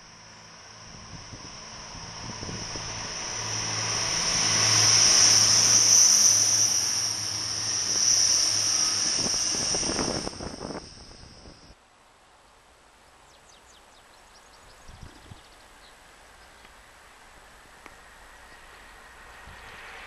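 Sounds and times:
diesel train engine hum: 0.0 - 11.8, 16.0 - 20.0
high-pitched whine: 0.0 - 11.8, 17.2 - 20.0
rushing wheel noise: 0.0 - 11.8.

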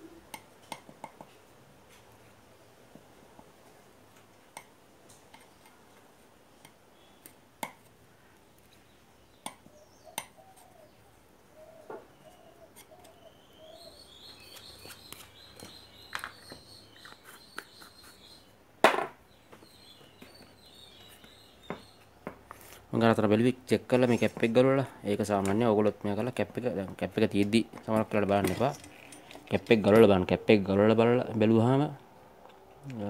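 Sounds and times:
stick tapping and scraping: 4.1 - 7.9, 9.4 - 10.8, 12.3 - 13.2, 14.3 - 18.4
birds chirping: 8.7 - 18.6, 19.2 - 31.8.

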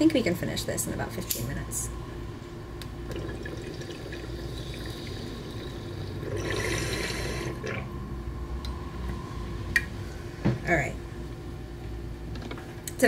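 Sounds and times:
water bubbling in a bong: 2.9 - 8.4.

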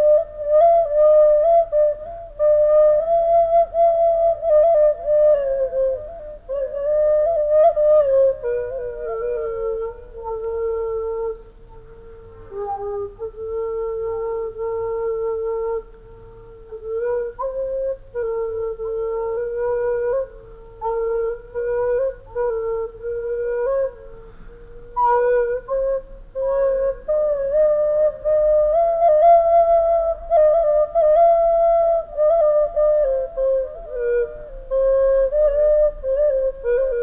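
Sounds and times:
solo flute melody: 0.0 - 37.0.

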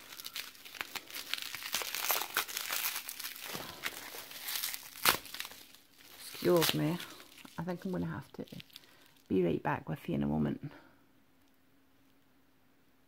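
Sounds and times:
bubble wrap snap: 0.0 - 8.9
bubble wrap crinkling: 0.0 - 9.4.

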